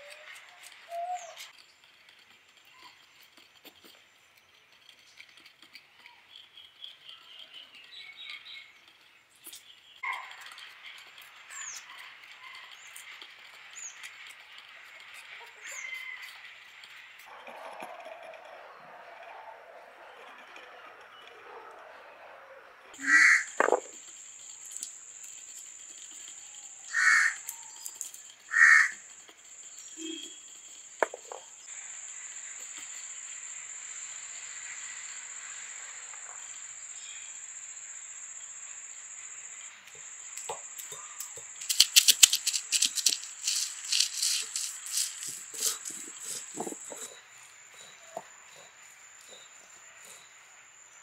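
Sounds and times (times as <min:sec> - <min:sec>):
bird calling: 0:00.0 - 0:01.5, 0:23.0 - 0:23.8, 0:26.8 - 0:27.7, 0:28.5 - 0:29.0, 0:40.9 - 0:48.7
stone roller crushing garlic: 0:00.0 - 0:18.4, 0:23.0 - 0:31.7, 0:40.4 - 0:50.3.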